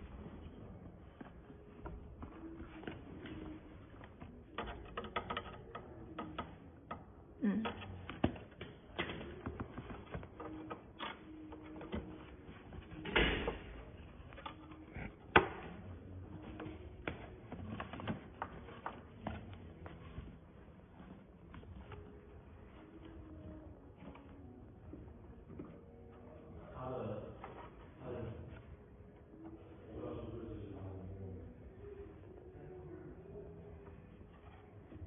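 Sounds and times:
screwdriver clicks and taps on metal: 4.6s - 7.0s.

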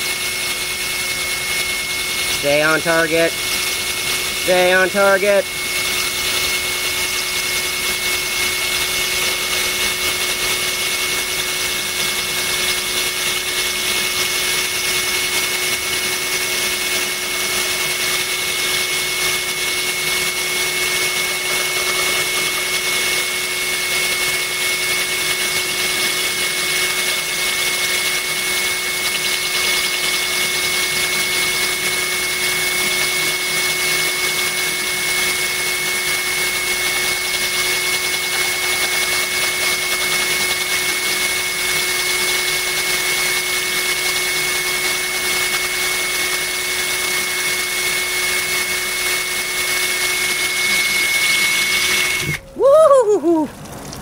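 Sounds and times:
drill bit grinding glass: 0.0s - 52.4s
water trickling: 53.5s - 54.0s.

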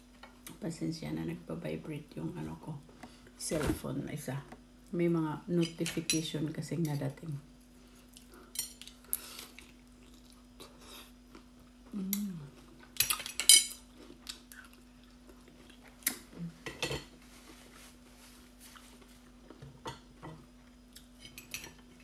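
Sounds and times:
faint steady hum: 0.0s - 22.0s
chewing: 8.0s - 11.5s, 13.9s - 16.3s.

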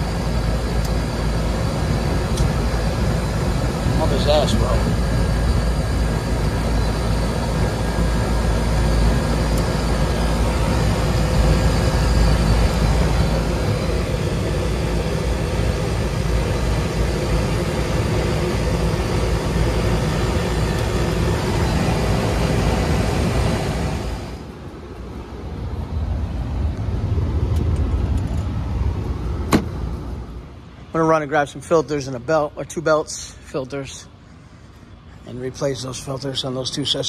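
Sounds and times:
air conditioning unit humming: 0.0s - 37.0s.

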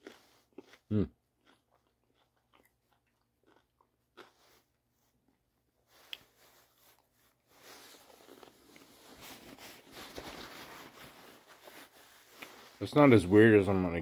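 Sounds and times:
chewing food: 0.0s - 10.3s
paper napkin rustling: 8.8s - 13.2s.

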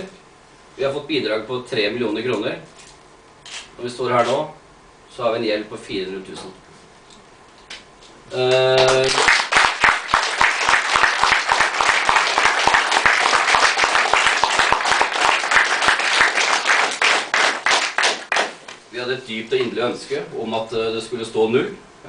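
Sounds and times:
audience applauding: 8.5s - 18.8s.

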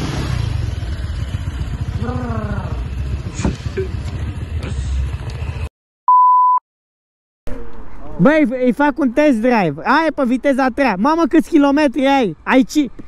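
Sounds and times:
scooter engine idling: 0.5s - 5.7s
person calling out: 2.0s - 2.8s.

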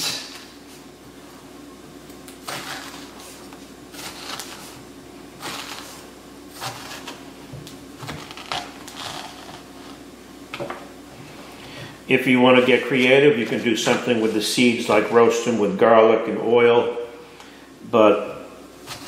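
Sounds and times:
steady low hum: 0.0s - 19.0s
metal spoon scraping pumpkin: 2.5s - 4.8s, 5.4s - 7.2s, 8.1s - 9.8s.

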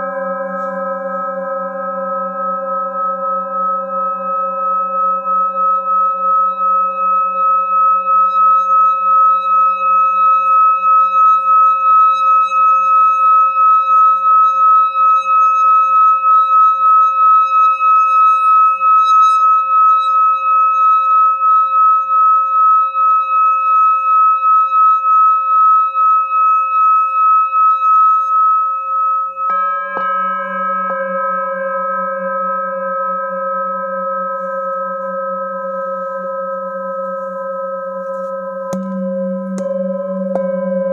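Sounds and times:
singing bowl ringing tone: 0.0s - 40.9s
stick knocking against bowl: 38.7s - 40.9s.

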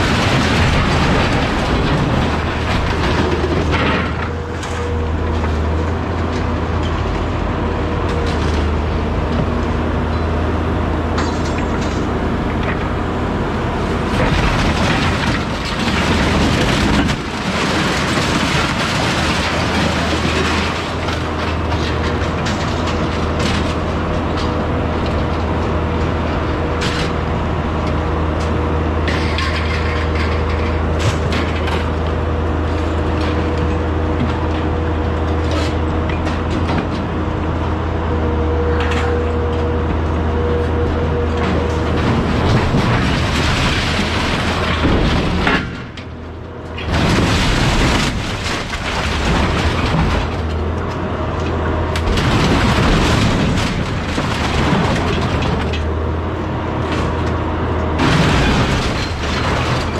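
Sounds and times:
loader engine and hydraulics whine: 0.0s - 59.9s
scrap metal rattling and clattering: 29.1s - 32.0s, 58.0s - 59.9s.

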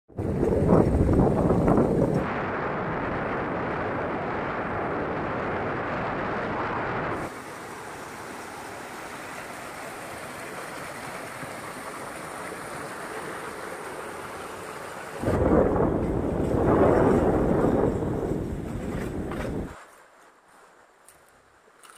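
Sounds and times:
loud rushing noise: 15.2s - 19.7s.

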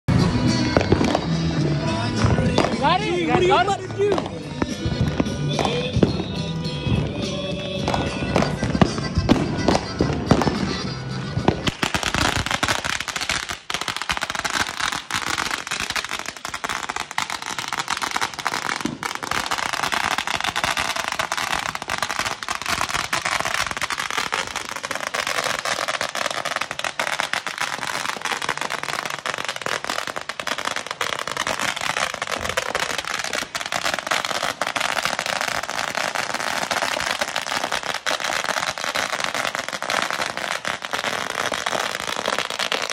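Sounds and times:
music: 0.1s - 13.6s, 14.2s - 42.9s
firecracker string crackling: 0.1s - 42.9s.

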